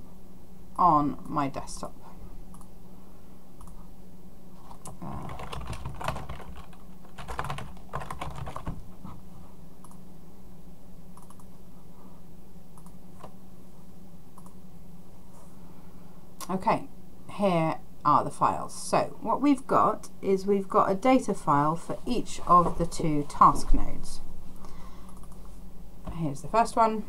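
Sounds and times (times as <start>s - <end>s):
steady low hum: 0.0s - 27.0s
typing on computer keyboard: 4.9s - 8.8s.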